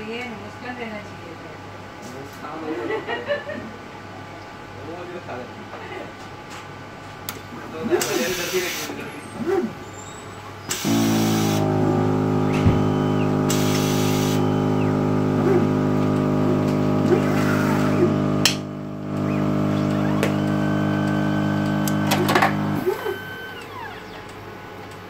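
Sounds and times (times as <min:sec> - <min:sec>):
machine mechanical hum: 0:00.0 - 0:25.0
mechanism whirs and clicks: 0:07.2 - 0:25.0.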